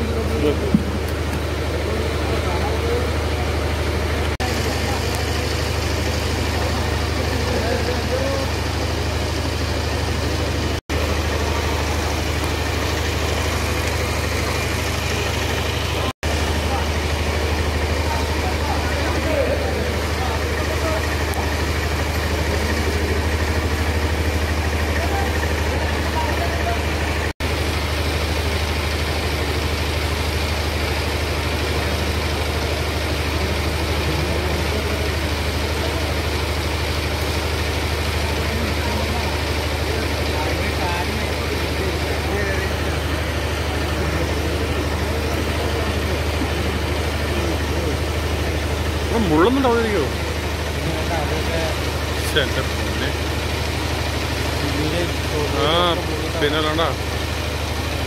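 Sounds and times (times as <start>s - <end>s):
engine running: 0.0s - 58.0s
water pump humming: 0.0s - 58.0s.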